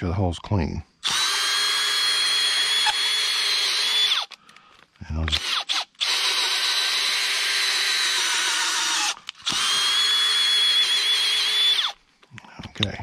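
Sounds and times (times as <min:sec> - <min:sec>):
cordless drill whining: 0:01.0 - 0:04.6, 0:05.2 - 0:12.0.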